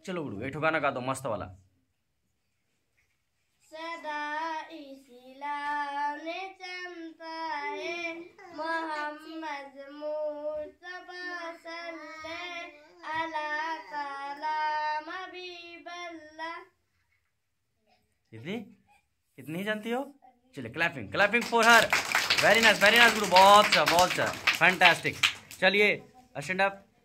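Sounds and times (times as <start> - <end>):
girl singing unaccompanied: 3.7 - 16.8.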